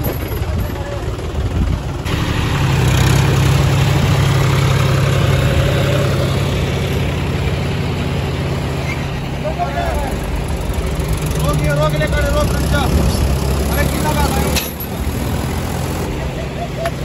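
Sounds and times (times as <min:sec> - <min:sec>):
tractor diesel engines under load: 0:00.0 - 0:17.0.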